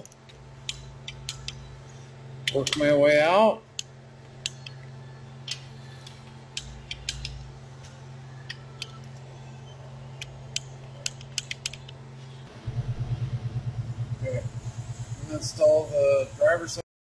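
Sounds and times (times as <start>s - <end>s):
steady low hum: 0.0s - 16.8s
pulsing low hum: 3.8s - 16.8s
torque wrench clicking: 10.2s - 11.9s.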